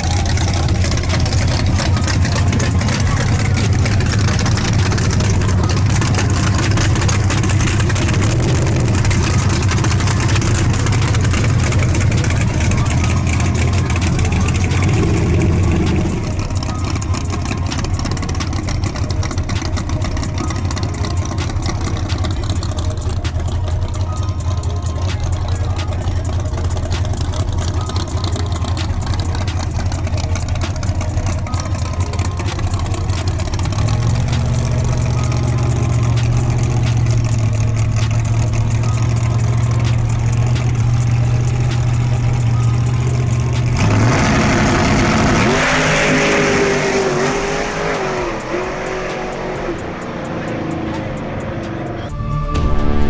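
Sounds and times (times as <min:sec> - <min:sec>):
drag race car engine revving: 0:00.0 - 0:53.0.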